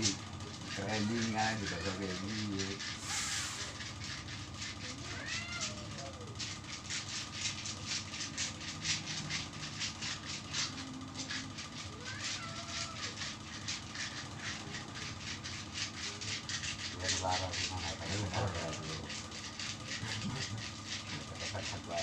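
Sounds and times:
cat meowing faintly: 0:04.8 - 0:06.4, 0:11.9 - 0:13.2
hands rubbing skin: 0:05.6 - 0:22.0.

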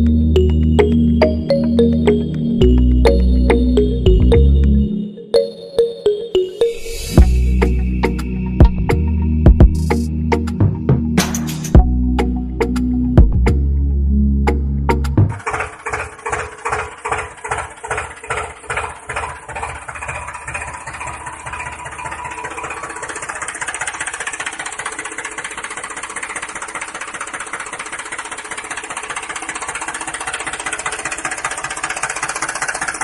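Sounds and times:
tractor engine starting up: 0:14.4 - 0:33.0.

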